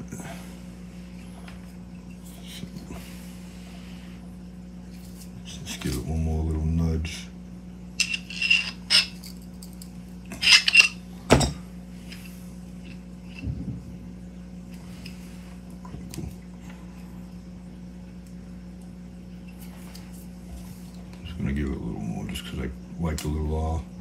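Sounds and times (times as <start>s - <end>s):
metal parts clinking: 8.0s - 13.4s.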